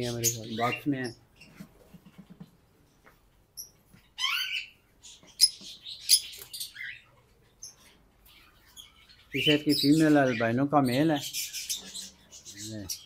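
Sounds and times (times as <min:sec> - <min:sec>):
birds chirping: 0:00.0 - 0:13.0
bird squawks: 0:04.2 - 0:13.0.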